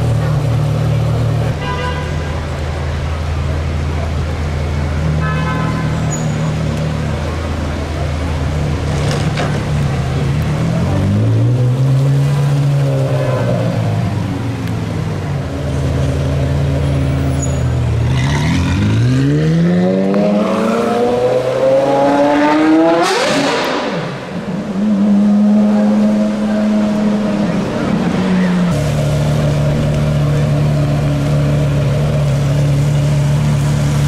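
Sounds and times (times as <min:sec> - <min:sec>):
sports car engine revving: 0:06.6 - 0:17.3, 0:17.9 - 0:34.0.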